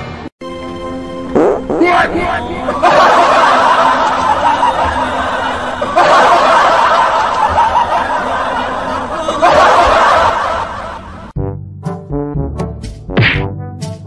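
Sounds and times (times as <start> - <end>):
laugh track crowd laughing: 1.9 - 11.3.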